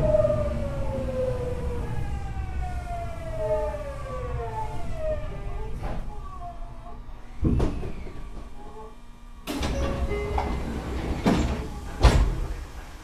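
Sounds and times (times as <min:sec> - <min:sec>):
train door closing thump: 0:07.4 - 0:08.6, 0:09.5 - 0:12.8.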